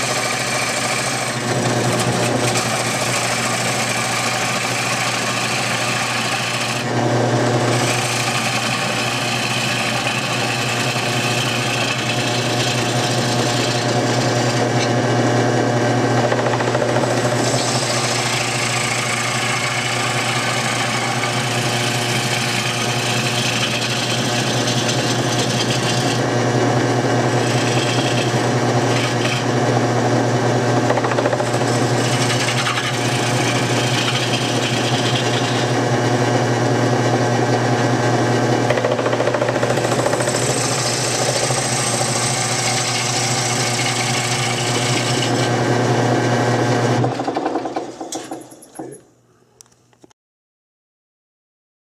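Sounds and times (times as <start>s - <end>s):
lathe motor hum: 0.0s - 48.4s
tool scraping wood: 0.0s - 49.1s.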